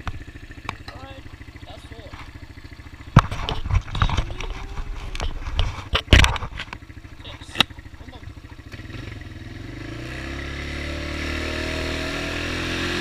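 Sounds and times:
atv engine idling: 0:00.0 - 0:11.0
knocks and thumps on microphone: 0:03.1 - 0:06.7.

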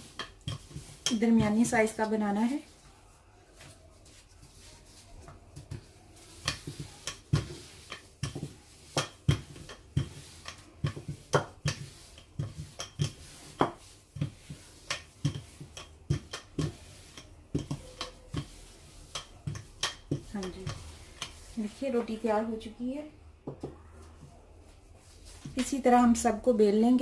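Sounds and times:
rolling pin knocking on countertop: 0:05.6 - 0:22.1, 0:23.4 - 0:23.8.

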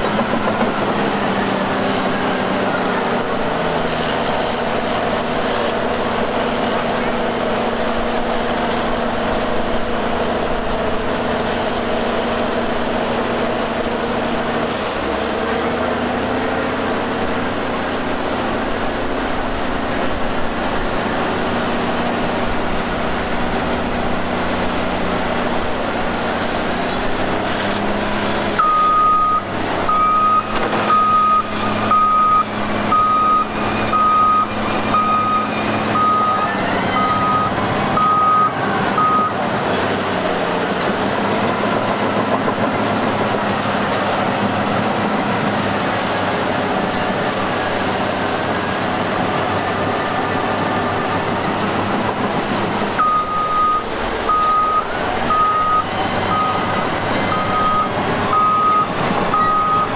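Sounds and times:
diesel engine running: 0:00.0 - 0:59.9
reversing alarm beeping: 0:28.6 - 0:39.4, 0:53.0 - 0:59.9.

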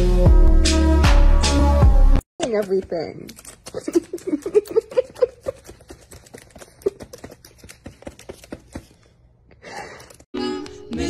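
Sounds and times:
music: 0:00.0 - 0:02.2, 0:10.4 - 0:11.0
rapid sharp clicks and taps: 0:02.4 - 0:08.9.

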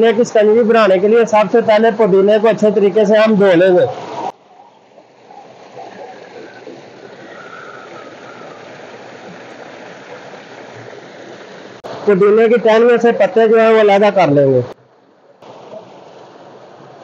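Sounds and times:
water gushing into a tank: 0:03.9 - 0:13.2.

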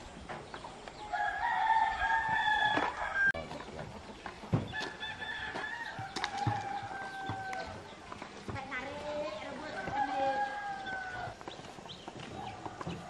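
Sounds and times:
rooster crowing: 0:01.1 - 0:03.4, 0:04.8 - 0:07.8, 0:09.8 - 0:11.4.

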